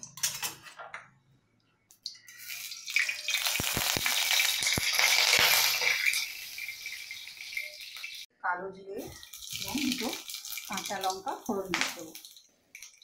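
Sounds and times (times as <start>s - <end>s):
spices sizzling in hot oil: 2.0s - 8.3s, 9.0s - 13.0s.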